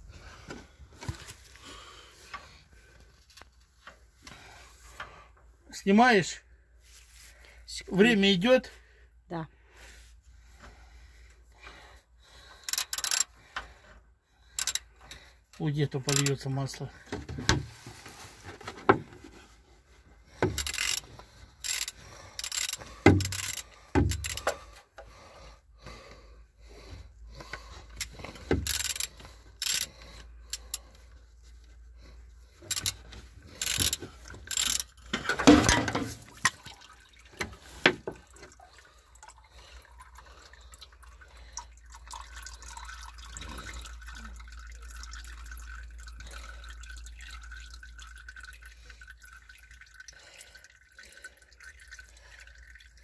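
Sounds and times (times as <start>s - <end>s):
oil dripping: 10.1s - 53.0s
wrench clanking on metal: 20.5s - 24.6s, 28.4s - 29.9s, 32.7s - 36.2s.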